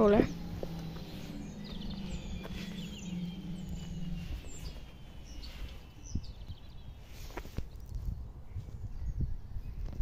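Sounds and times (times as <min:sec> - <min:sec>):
low steady hum: 0:00.0 - 0:07.4
small birds chirping: 0:00.0 - 0:10.0.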